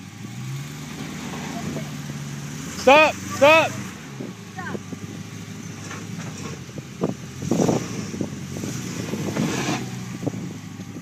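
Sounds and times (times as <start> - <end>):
engine running at low revs: 0.0 - 11.0
knocks and scraping: 4.2 - 10.4.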